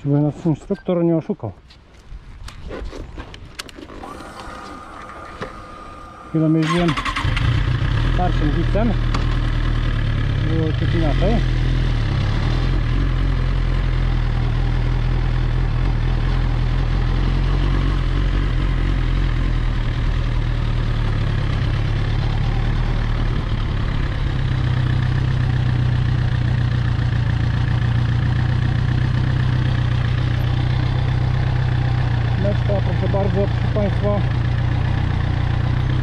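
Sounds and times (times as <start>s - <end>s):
motorcycle engine idling: 4.5s - 36.0s.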